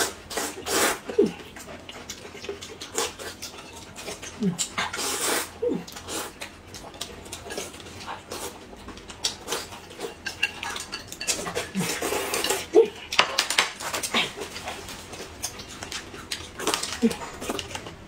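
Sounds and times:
noodles being slurped: 0:00.0 - 0:01.6, 0:02.8 - 0:06.4
food chewing: 0:00.0 - 0:18.0
utensils clicking on plate: 0:08.8 - 0:14.2.

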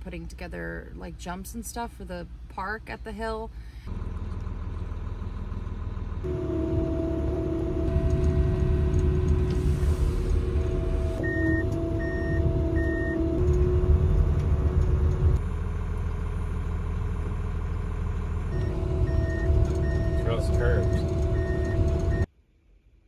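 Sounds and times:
snow groomer engine running: 0:03.9 - 0:22.3.

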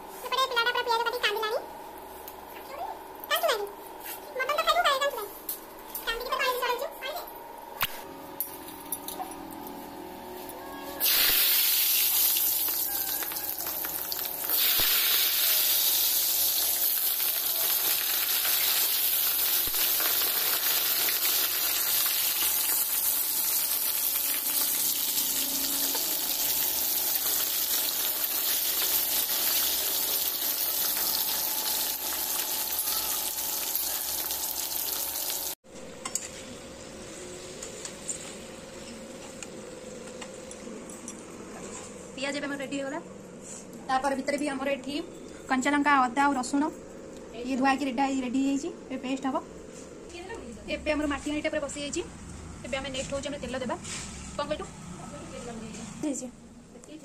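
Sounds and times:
potatoes sizzling in hot oil: 0:11.0 - 0:35.6.

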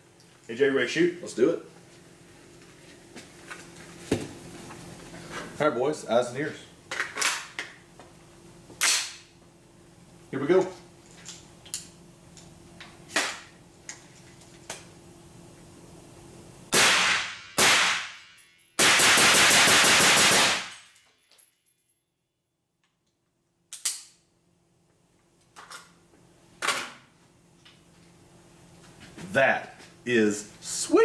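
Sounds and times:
rapid automatic gunfire: 0:18.8 - 0:20.7.

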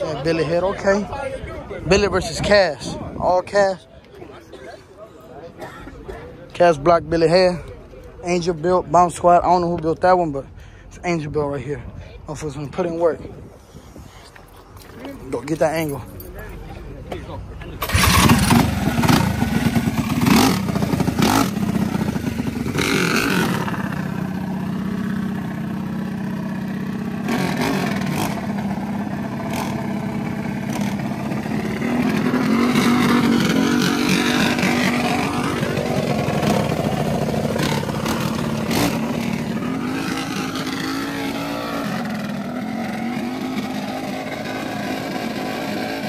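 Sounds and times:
minibike engines droning: 0:12.4 - 0:46.0
sharp engine revs: 0:17.8 - 0:24.0, 0:27.1 - 0:46.0.

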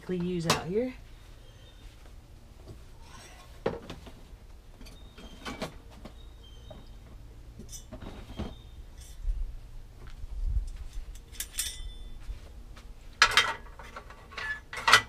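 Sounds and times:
low steady hum: 0:00.0 - 0:15.0
objects knocking and clattering: 0:13.2 - 0:15.0.

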